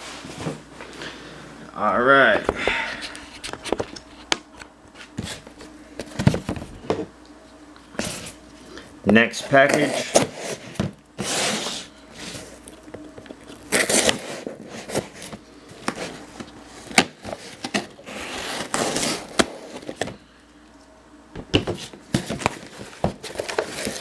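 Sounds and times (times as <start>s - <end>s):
tape tearing: 13.4s - 15.3s, 16.9s - 20.0s
knife slitting packing tape: 13.7s - 15.1s, 18.1s - 19.6s
cardboard flaps scraping: 13.7s - 20.2s.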